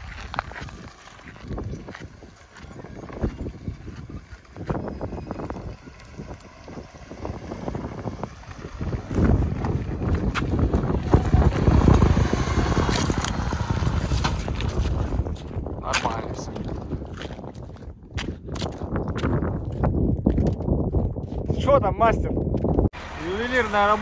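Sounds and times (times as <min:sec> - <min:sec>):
car engine: 0:00.0 - 0:16.5, 0:23.0 - 0:24.0
off-road vehicle rumbling: 0:00.0 - 0:24.0.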